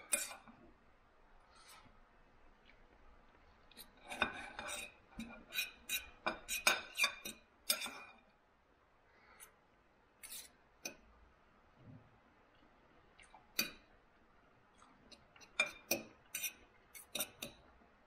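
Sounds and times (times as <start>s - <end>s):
cutlery clinking on plate: 4.0s - 8.1s.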